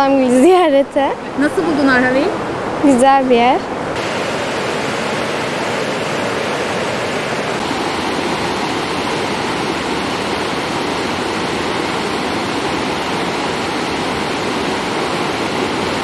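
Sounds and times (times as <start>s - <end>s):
river rushing over rocks: 1.2s - 16.0s.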